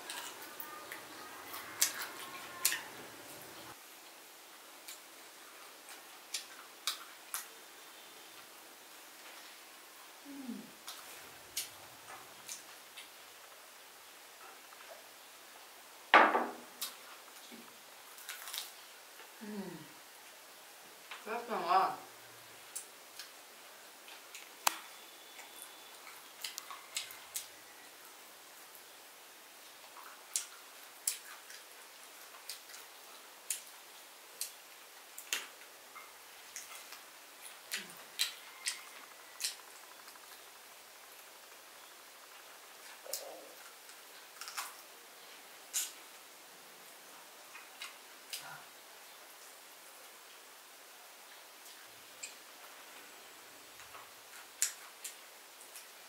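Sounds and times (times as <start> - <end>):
chewing crunches and clicks: 25.4 - 27.5, 29.8 - 32.9, 35.2 - 41.3, 42.2 - 44.9, 53.8 - 56.0.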